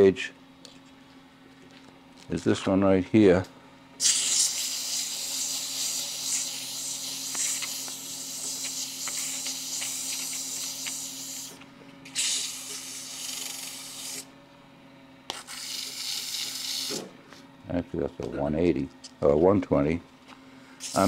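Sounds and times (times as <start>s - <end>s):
sandpaper hissing on spinning wood: 4.0s - 11.6s, 12.2s - 14.2s, 20.8s - 21.0s.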